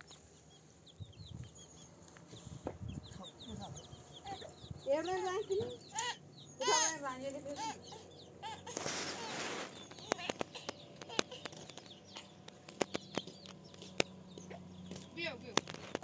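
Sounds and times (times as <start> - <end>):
faint chicken chirps: 7.9 - 12.3
short rush of noise: 8.8 - 9.8
sharp clicks and taps: 9.9 - 16.0.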